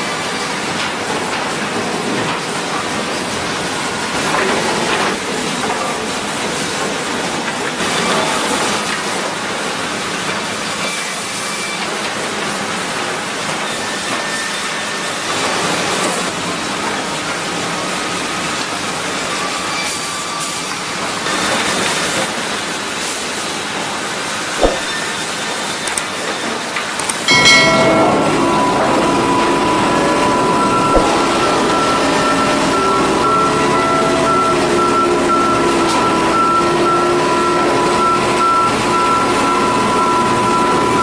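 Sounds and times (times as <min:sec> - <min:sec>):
sawmill machinery din: 0:18.8 - 0:41.0.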